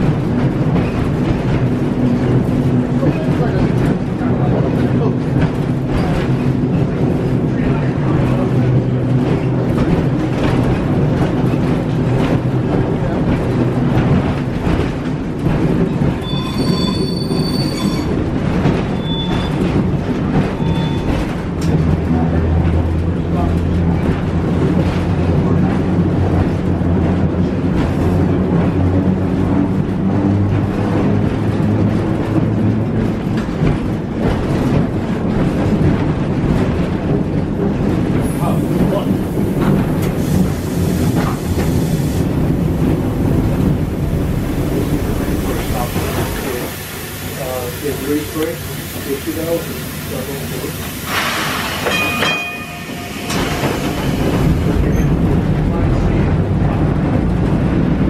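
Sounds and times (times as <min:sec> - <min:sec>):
streetcar wheels rumbling and rattling: 0:00.0 - 0:58.0
wheels squealing: 0:16.2 - 0:18.2, 0:18.8 - 0:19.8, 0:20.4 - 0:21.4.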